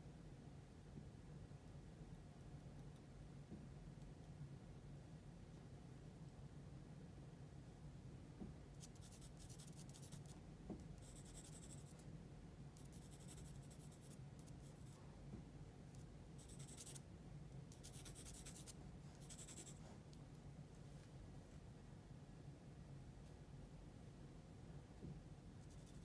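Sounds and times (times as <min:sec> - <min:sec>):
low room hum: 0:00.0 - 0:26.0
pencil scratching on paper: 0:08.8 - 0:10.3, 0:11.0 - 0:11.9, 0:12.8 - 0:15.0, 0:16.4 - 0:17.0, 0:17.7 - 0:19.8, 0:25.6 - 0:26.0.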